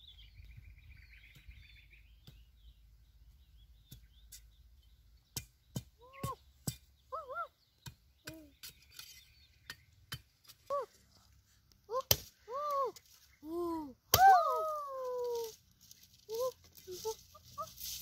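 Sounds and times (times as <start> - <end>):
birdlike chirps: 0.0 - 10.3.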